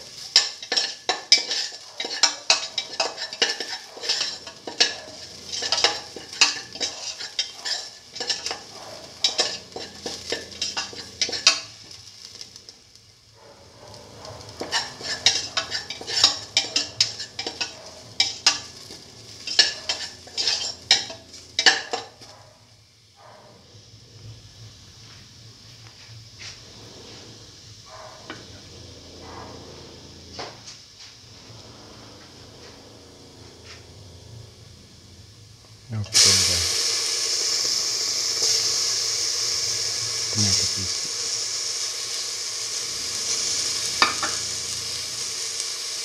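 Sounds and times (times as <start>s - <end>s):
light sizzle in oil: 0.0s - 46.0s
spatula scraping steel pan: 0.2s - 12.0s, 14.1s - 22.3s.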